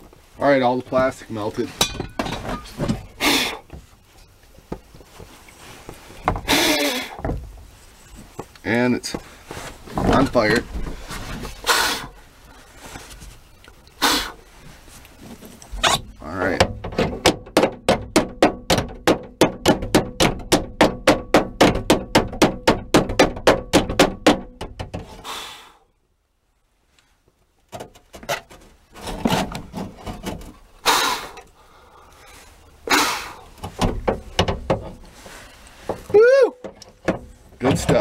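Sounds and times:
scraping: 0.0s - 17.3s, 27.8s - 38.0s
irregular knocks: 16.4s - 25.1s, 33.6s - 35.0s.

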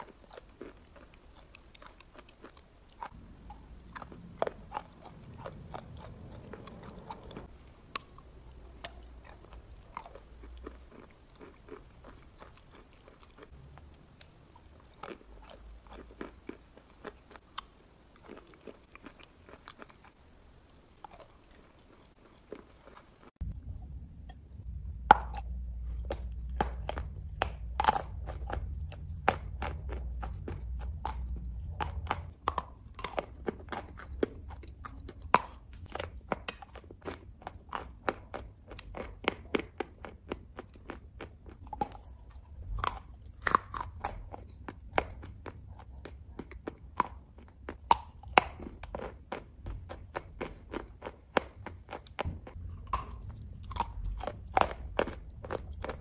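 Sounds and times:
crunching and chewing chalk: 0.0s - 23.5s, 24.2s - 56.0s
low hum: 23.4s - 32.3s.

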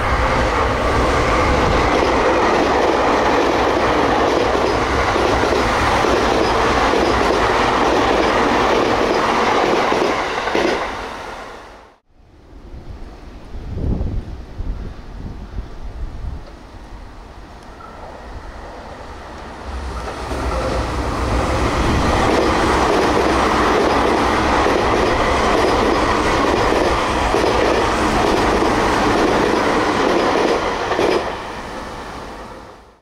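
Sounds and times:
train wheels rumbling on rails: 0.0s - 12.0s, 13.7s - 32.9s
wheels clacking over rail joints: 1.6s - 10.9s.

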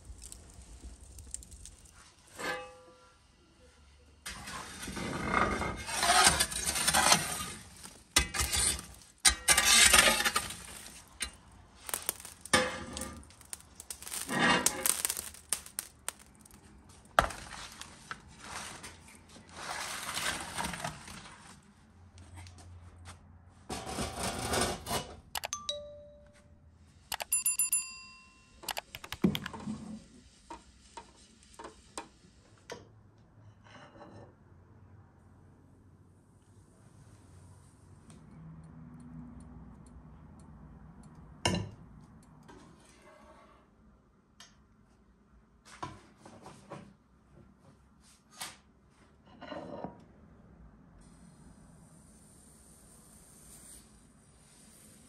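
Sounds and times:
scraping or rustling: 4.3s - 21.6s
ringing clinks: 25.4s - 26.4s, 27.1s - 29.2s.

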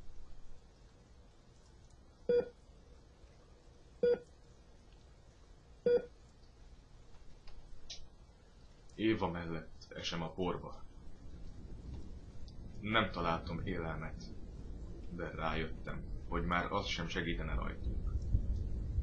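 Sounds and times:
faint background hiss: 0.0s - 19.0s
short electronic beeps: 2.3s - 2.5s, 5.9s - 6.1s.

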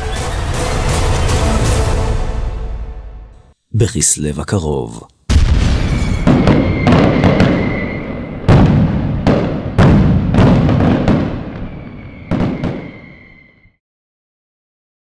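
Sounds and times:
fireworks bangs: 5.3s - 13.7s
thin steady whistle: 6.4s - 8.4s, 11.7s - 13.8s.

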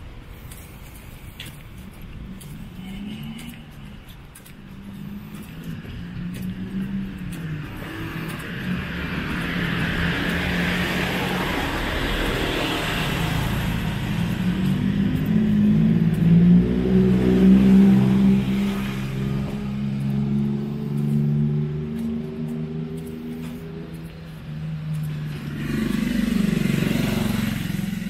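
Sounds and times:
motor scooter passing by: 4.9s - 28.0s.

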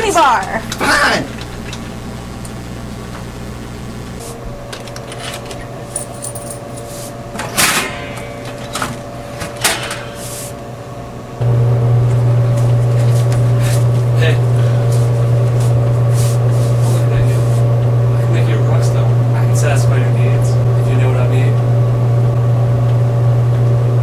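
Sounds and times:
low electrical hum: 0.0s - 24.0s
vending machine flap clattering: 7.3s - 10.6s.

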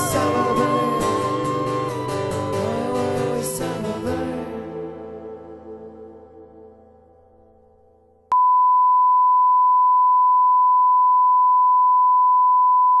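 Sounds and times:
music: 0.0s - 8.2s.

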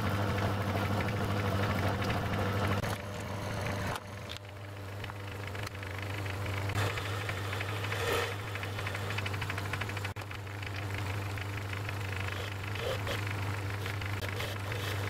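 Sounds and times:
lathe motor hum: 0.0s - 15.0s
drill cutting steel chatter: 12.1s - 15.0s.

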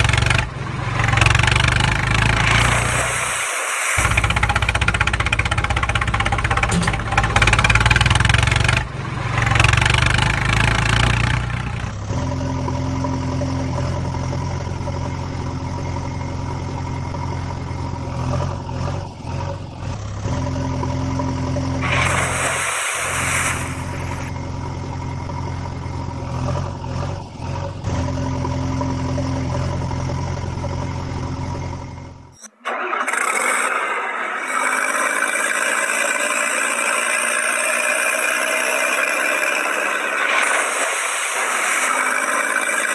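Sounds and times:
higher engine tone: 0.0s - 33.0s
engine running with low hum: 0.0s - 33.1s
hissy noise: 2.4s - 4.8s, 21.8s - 24.3s, 39.8s - 42.9s.

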